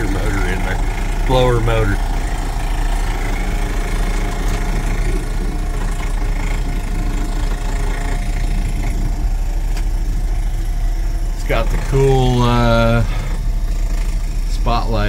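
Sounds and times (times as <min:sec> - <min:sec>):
heater blower motor running: 0:00.0 - 0:15.0
truck engine idling: 0:00.0 - 0:15.0.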